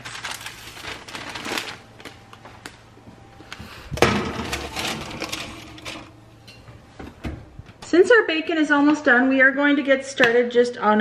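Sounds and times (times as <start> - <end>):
paper rustling: 0.0 - 2.8
tray clattering onto oven rack: 4.0 - 6.1.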